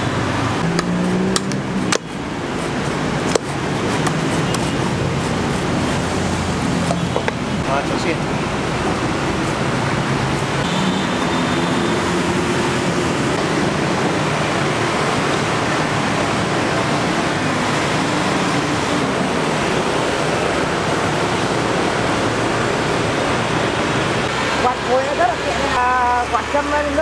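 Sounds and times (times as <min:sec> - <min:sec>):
road traffic hiss: 0:00.0 - 0:27.0.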